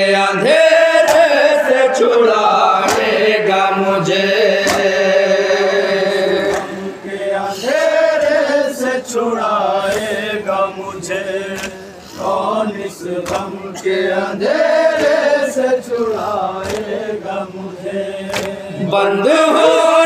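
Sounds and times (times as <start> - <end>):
men chanting a lament: 0.0 - 20.0
hands slapping chest: 4.6 - 4.9, 13.2 - 13.5, 16.6 - 16.9, 18.3 - 18.6.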